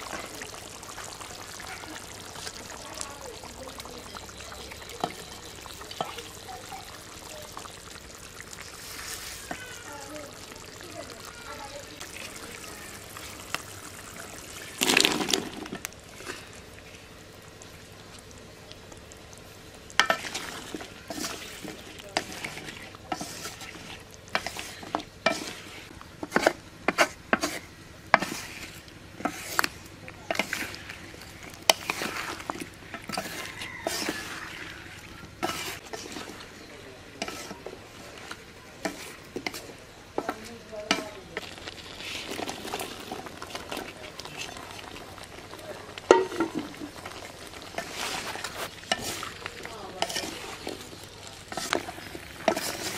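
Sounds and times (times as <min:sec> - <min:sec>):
low steady sizzle: 0:00.0 - 0:52.9
spatula scraping metal pan: 0:20.0 - 0:30.9, 0:31.7 - 0:34.7, 0:35.4 - 0:36.5, 0:37.2 - 0:41.2, 0:47.7 - 0:50.9, 0:51.5 - 0:52.9.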